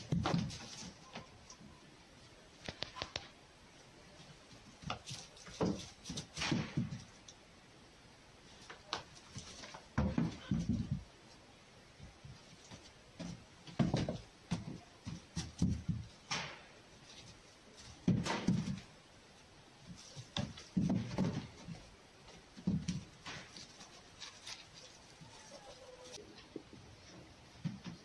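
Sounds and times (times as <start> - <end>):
fox paws scrabbling on straw: 19.8 - 27.2.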